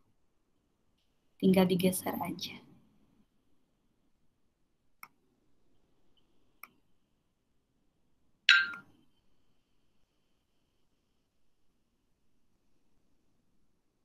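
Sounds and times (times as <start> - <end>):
computer mouse clicks: 5.0 - 5.2
sharp ringing click: 8.5 - 8.8.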